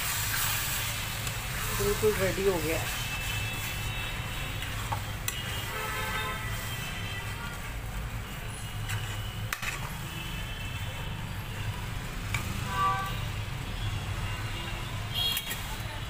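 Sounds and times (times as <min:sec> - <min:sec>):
spoon stirring thick mash: 0:01.1 - 0:06.0.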